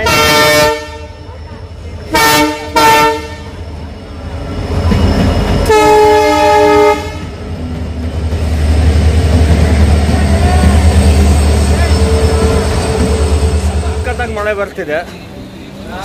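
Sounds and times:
train horn blasts: 0:00.0 - 0:01.3, 0:02.1 - 0:03.6, 0:05.6 - 0:07.4
low rumble of train: 0:00.0 - 0:16.0.

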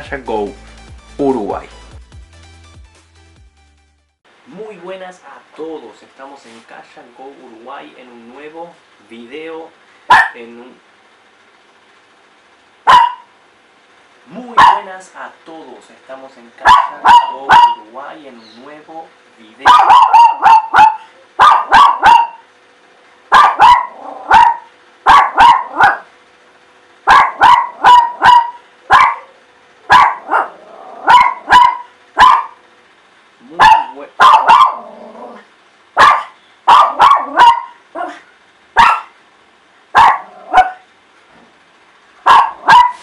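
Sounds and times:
dog barking: 0:10.1 - 0:10.4, 0:12.8 - 0:13.4, 0:14.5 - 0:14.9, 0:16.6 - 0:17.9, 0:19.6 - 0:22.5, 0:23.3 - 0:26.1, 0:27.0 - 0:32.6, 0:33.5 - 0:35.0, 0:36.0 - 0:39.2, 0:39.9 - 0:40.9, 0:42.2 - 0:43.0.

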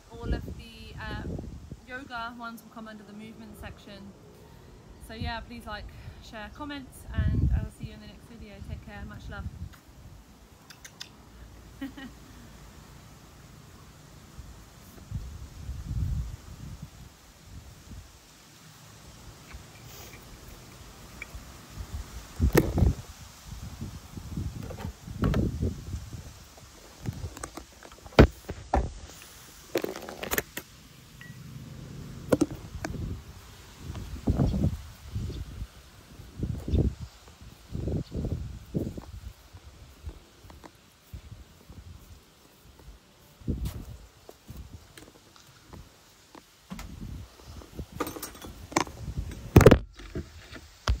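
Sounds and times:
low wind rumble: 0:00.0 - 0:10.6, 0:14.3 - 0:18.3, 0:20.8 - 0:29.0, 0:31.2 - 0:42.2, 0:46.7 - 0:51.0.

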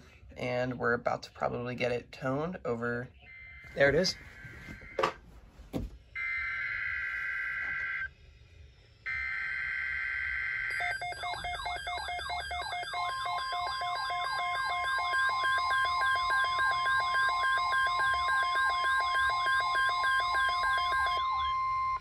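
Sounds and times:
warbling electronic alert siren: 0:03.1 - 0:05.2, 0:06.2 - 0:08.1, 0:09.1 - 0:22.0
steady attention tone: 0:03.1 - 0:08.1, 0:09.1 - 0:22.0
screechy digital data bursts: 0:09.3 - 0:22.0.

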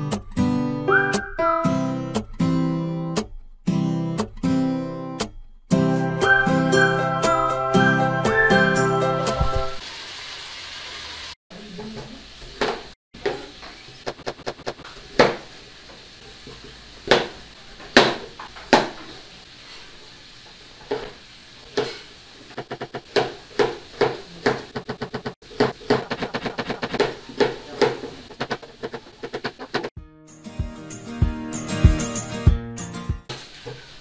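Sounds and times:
knife chopping on cutting board: 0:17.0 - 0:17.4, 0:18.0 - 0:19.0, 0:22.6 - 0:29.9.

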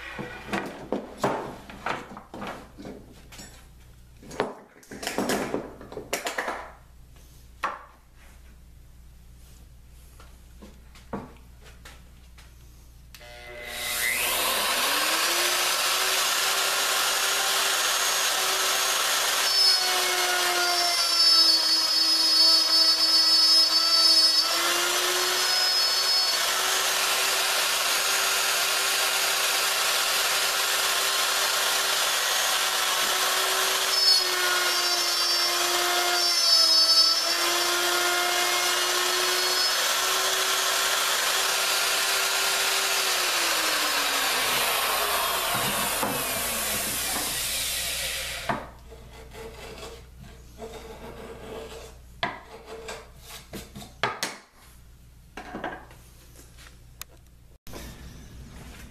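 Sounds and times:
router winding down: 0:13.2 - 0:20.1, 0:26.1 - 0:34.0, 0:37.2 - 0:48.5
router motor whine: 0:13.2 - 0:20.7, 0:23.6 - 0:48.5.

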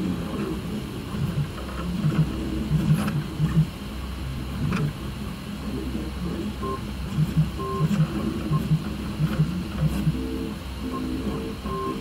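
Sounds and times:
steady low hum: 0:00.0 - 0:12.0
stepper motors whining: 0:04.4 - 0:12.0.

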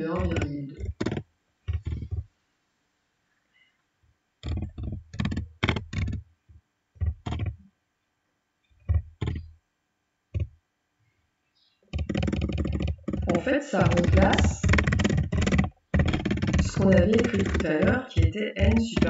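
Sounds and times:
keyboard typing: 0:00.0 - 0:02.3, 0:04.4 - 0:06.2, 0:07.0 - 0:07.6, 0:08.9 - 0:09.5, 0:11.9 - 0:19.0.

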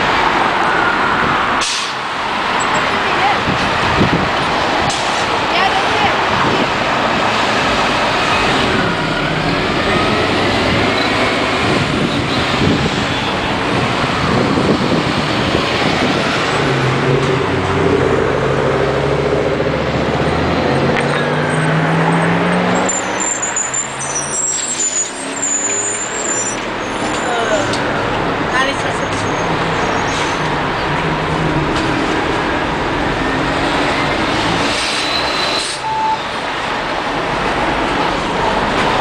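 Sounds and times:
bus engine pulling away: 0:00.0 - 0:39.0
buses and traffic passing: 0:00.0 - 0:39.0
high squealing tones: 0:21.1 - 0:27.7.

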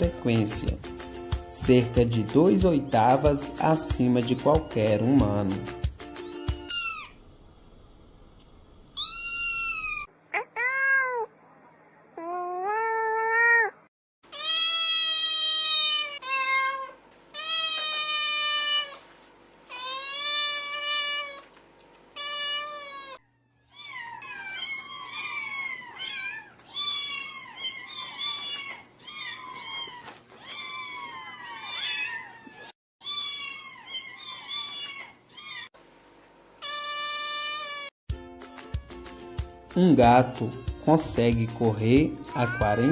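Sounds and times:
cat meowing: 0:06.3 - 0:07.2, 0:09.0 - 0:11.3, 0:12.2 - 0:19.0, 0:19.7 - 0:21.6, 0:22.2 - 0:35.7, 0:36.6 - 0:37.9, 0:42.3 - 0:42.9
kitten mewing: 0:09.0 - 0:11.3, 0:12.2 - 0:19.0, 0:42.3 - 0:42.9.

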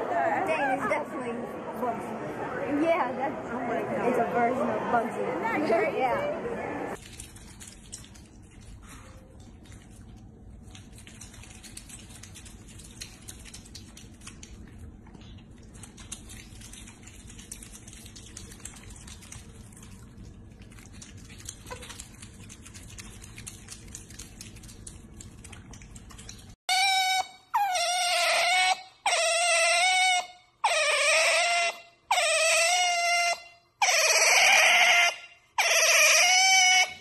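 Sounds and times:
low steady hum: 0:03.3 - 0:26.6.

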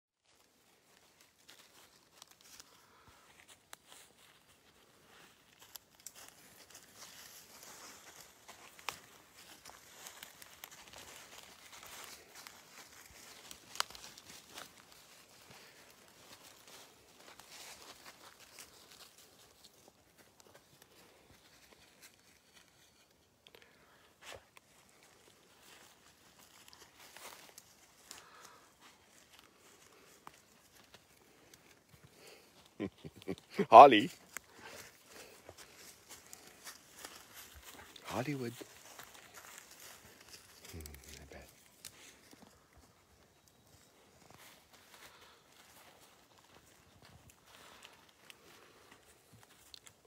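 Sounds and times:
footsteps through dead leaves: 0:00.4 - 0:22.7, 0:24.7 - 0:31.5, 0:32.1 - 0:50.0.

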